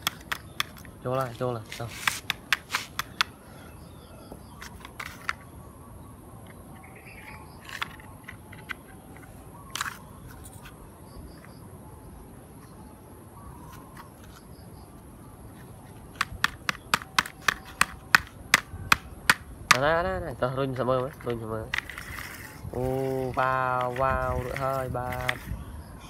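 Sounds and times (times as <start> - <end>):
plastic toy parts clicking: 0.0 - 1.3, 2.0 - 3.4, 4.6 - 5.4, 7.6 - 10.6, 21.1 - 22.5, 23.3 - 25.5
faint bird chirps: 3.0 - 16.2, 22.1 - 26.0.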